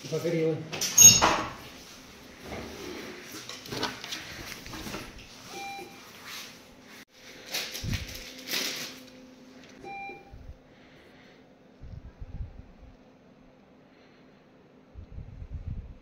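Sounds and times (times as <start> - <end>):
clothing and bedsheets rustling: 1.6 - 9.1.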